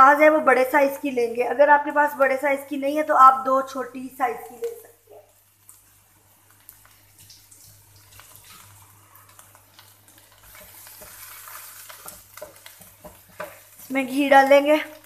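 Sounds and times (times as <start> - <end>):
onions sizzling in a wok: 0.0 - 15.0
wooden spatula scraping a pan: 10.2 - 14.1.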